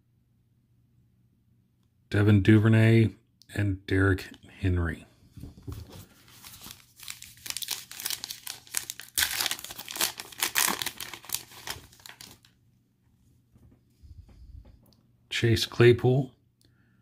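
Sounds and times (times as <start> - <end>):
foil wrapper crinkling and tearing: 6.0 - 12.6.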